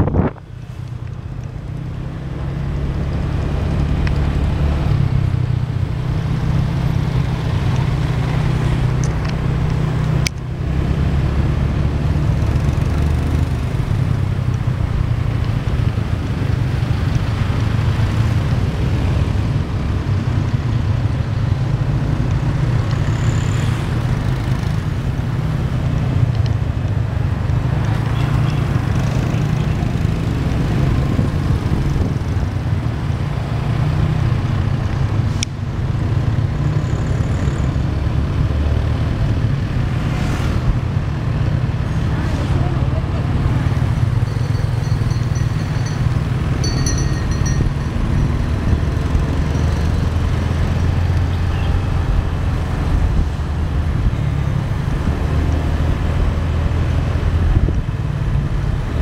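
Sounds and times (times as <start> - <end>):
wind on microphone: 0.0 - 0.5
motorbike engine rumbling: 40.8 - 51.7.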